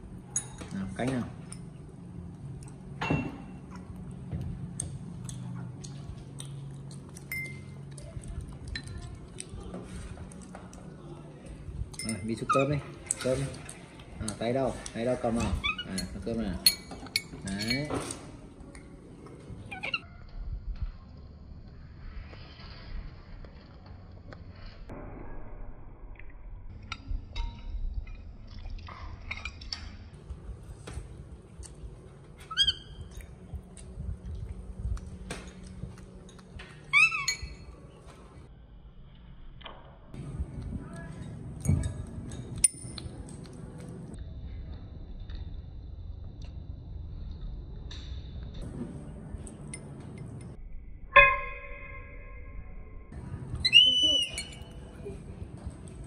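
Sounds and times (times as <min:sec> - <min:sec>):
low hum: 0:00.0 - 0:56.0
monkey squeaking: 0:15.4 - 0:16.8, 0:19.7 - 0:20.0, 0:32.4 - 0:33.3, 0:36.8 - 0:37.7, 0:53.5 - 0:55.0.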